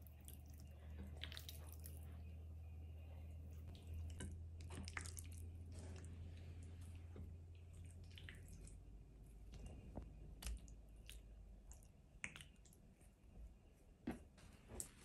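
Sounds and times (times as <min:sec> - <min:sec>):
wet squishes of raw chicken: 0:00.0 - 0:02.0, 0:03.7 - 0:06.6, 0:07.6 - 0:08.9, 0:10.4 - 0:13.0.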